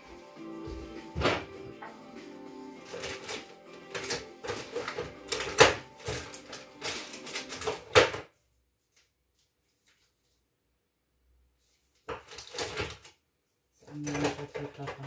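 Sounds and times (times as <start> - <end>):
kitchen items clicking and knocking: 2.8 - 8.3, 12.0 - 13.2, 13.8 - 15.0.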